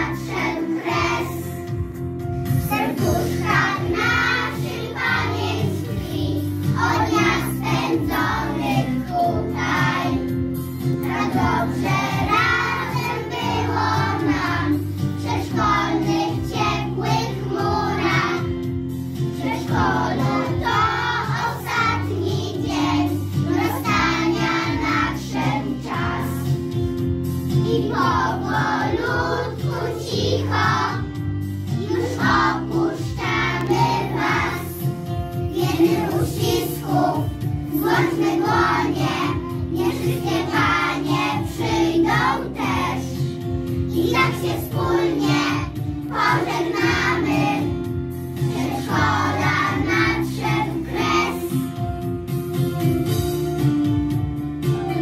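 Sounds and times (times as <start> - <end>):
children singing in unison: 0.0 - 1.5, 2.7 - 10.3, 11.1 - 18.5, 19.4 - 26.4, 27.7 - 31.1, 31.8 - 34.8, 35.5 - 43.2, 44.0 - 47.7, 48.5 - 51.5
instrumental accompaniment with bass: 0.0 - 55.0.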